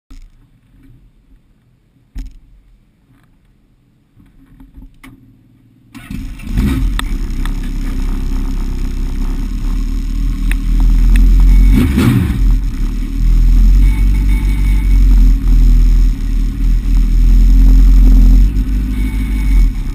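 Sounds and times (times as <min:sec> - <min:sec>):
race car engine rumbling: 0:06.0 - 0:19.9.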